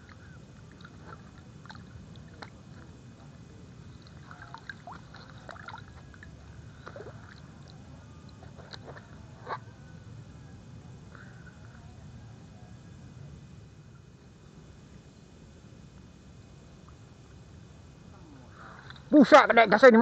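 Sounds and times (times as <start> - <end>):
water splashing and dripping: 0.0 - 2.9, 4.0 - 7.8.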